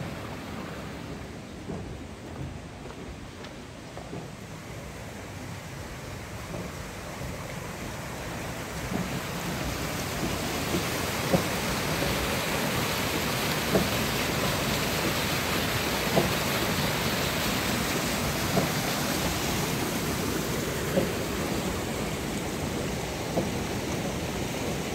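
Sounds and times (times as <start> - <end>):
water rushing down a channel: 0.0 - 24.9.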